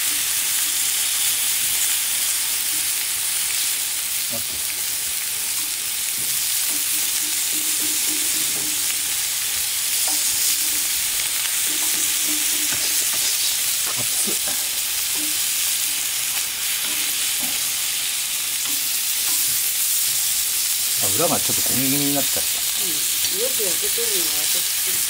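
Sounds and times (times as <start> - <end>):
steak sizzling on griddle: 0.0 - 25.0
metal utensils clicking on pan: 5.5 - 20.2.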